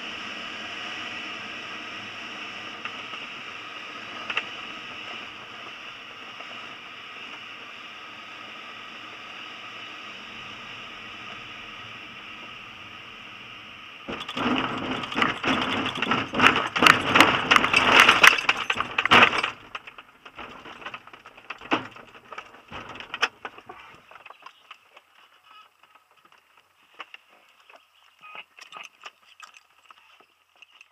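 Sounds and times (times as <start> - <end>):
glider wheel rumbling over grass: 10.1 - 25.0
knocks and clicks: 14.1 - 23.6.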